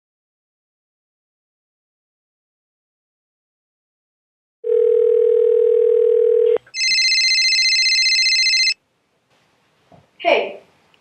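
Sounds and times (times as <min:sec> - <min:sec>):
electronic phone ringing: 0:04.6 - 0:08.8
telephone dial tone: 0:04.6 - 0:08.8.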